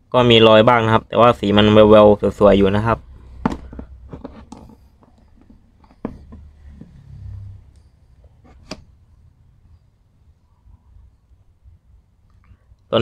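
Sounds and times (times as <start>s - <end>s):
soft handling noise: 3.0s - 9.0s.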